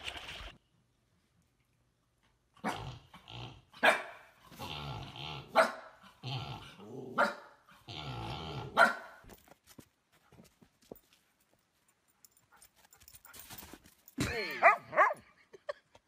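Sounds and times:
puppy barking: 0:03.8 - 0:04.2, 0:05.5 - 0:06.0, 0:07.2 - 0:07.6, 0:08.7 - 0:09.2, 0:14.6 - 0:15.2
puppy growling: 0:04.5 - 0:07.2, 0:07.8 - 0:08.8.

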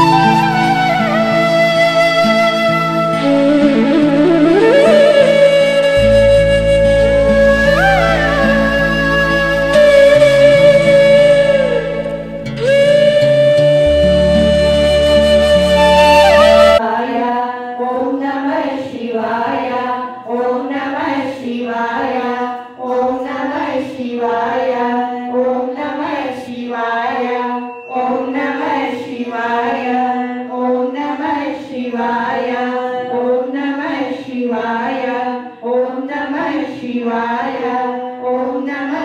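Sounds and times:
instrumental music: 0:00.0 - 0:16.8
voices singing a devotional chant: 0:16.8 - 0:39.0.

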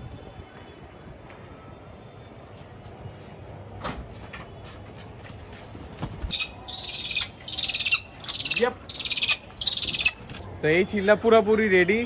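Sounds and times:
bird trilled squeals: 0:06.3 - 0:10.4.

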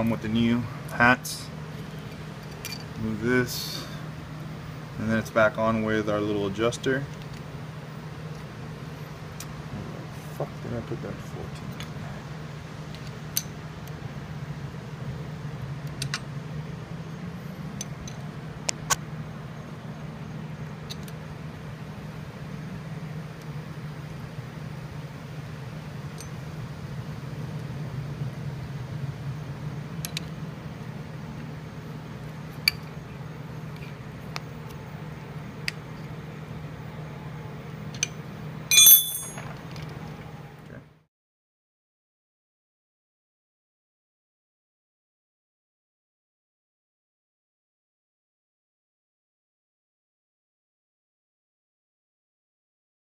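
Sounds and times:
steady low hum: 0:00.0 - 0:39.8
loud ringing metal clink: 0:38.7 - 0:39.5.

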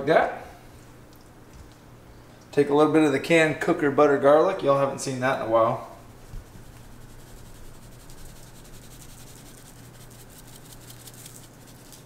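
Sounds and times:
low steady hum: 0:00.0 - 0:12.0
seasoning grains rattling from shaker: 0:06.4 - 0:12.0.

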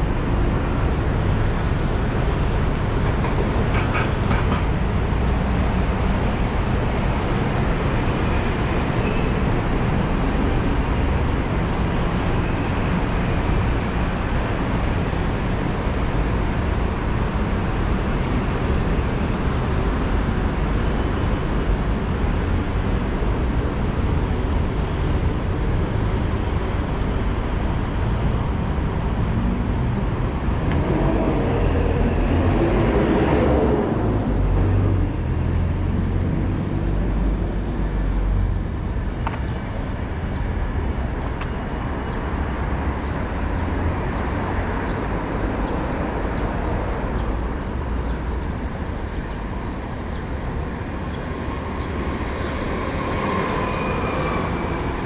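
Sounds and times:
road traffic rumble: 0:00.0 - 0:55.0
vehicle passing close by: 0:30.0 - 0:37.3.

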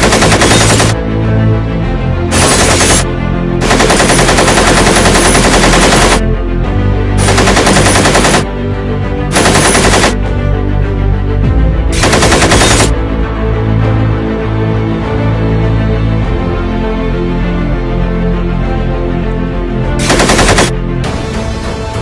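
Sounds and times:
machine-gun fire bursts: 0:00.0 - 0:01.0, 0:02.3 - 0:06.2, 0:07.2 - 0:08.5, 0:09.3 - 0:10.2, 0:12.0 - 0:13.0, 0:20.0 - 0:20.7
background music: 0:00.0 - 0:22.0.

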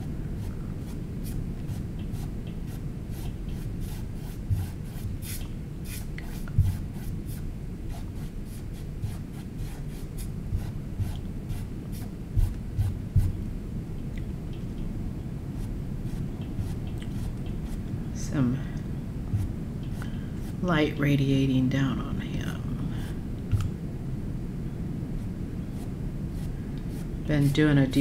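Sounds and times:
steady low rumble: 0:00.0 - 0:28.0
paintbrush swishing on canvas: 0:00.4 - 0:13.4
soft low thumps: 0:04.4 - 0:05.1, 0:06.5 - 0:06.9, 0:10.4 - 0:11.6, 0:12.3 - 0:13.5, 0:19.2 - 0:20.0.

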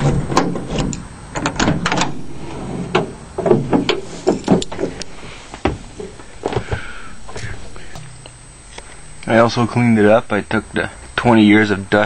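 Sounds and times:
van door clunks and knocks: 0:03.0 - 0:04.9.

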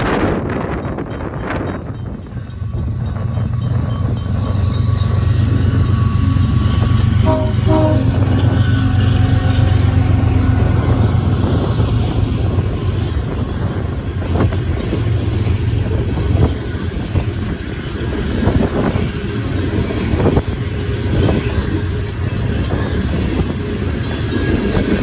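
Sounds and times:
diesel locomotive accelerating: 0:00.0 - 0:25.0
train cars rolling by: 0:00.0 - 0:25.0
train horn: 0:04.4 - 0:11.5.

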